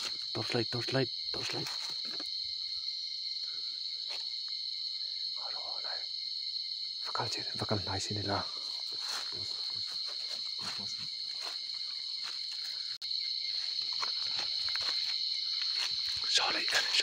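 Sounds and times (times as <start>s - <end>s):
night insects chorus: 0.0s - 17.0s
rustles and steps in undergrowth: 8.7s - 16.9s.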